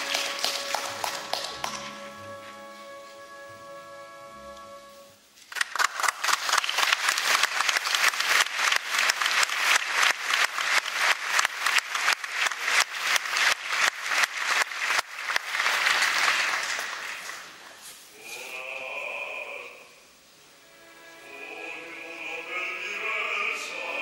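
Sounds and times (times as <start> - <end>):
audience applauding: 0.0 - 2.3, 5.5 - 17.6.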